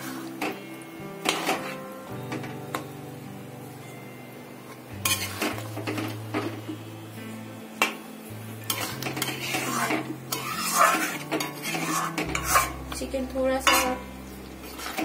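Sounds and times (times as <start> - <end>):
background music: 0.0 - 15.0
metal spoon scraping a pan: 1.2 - 2.5, 5.0 - 6.6, 8.6 - 15.0.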